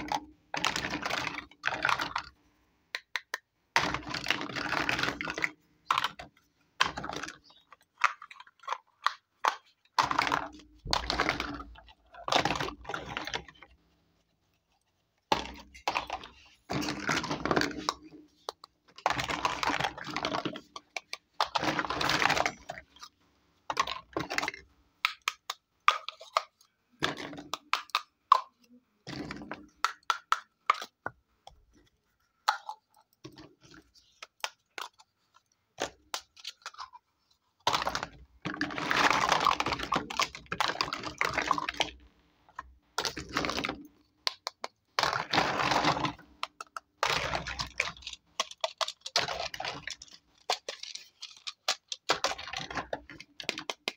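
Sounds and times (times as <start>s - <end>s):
plastic toy pieces clicking: 23.7s - 31.1s, 37.6s - 42.0s, 43.0s - 53.9s
rattling clatter of toys: 44.6s - 53.9s.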